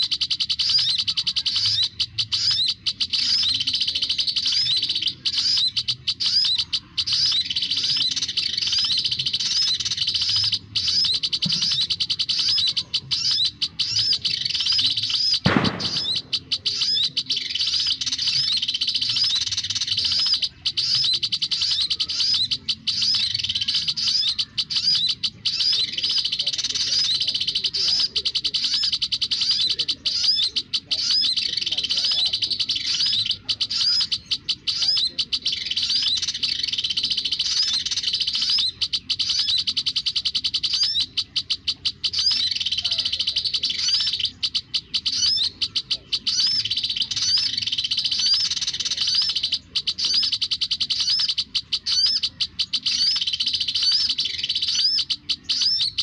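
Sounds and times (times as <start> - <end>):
bird call through loudspeaker: 0.0 - 56.0
thump: 15.5 - 16.2.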